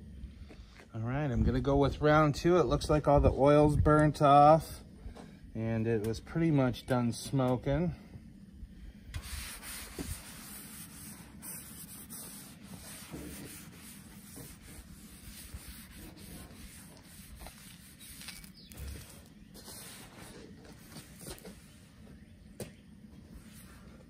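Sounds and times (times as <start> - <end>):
paper towels wiping griddle: 9.2 - 22.0.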